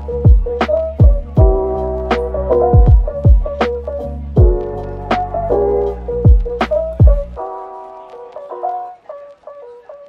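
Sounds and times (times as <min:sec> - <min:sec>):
soft keyboard chords: 0:00.0 - 0:10.0
deep drum hits: 0:00.3 - 0:01.7, 0:02.6 - 0:03.6, 0:04.4 - 0:04.6.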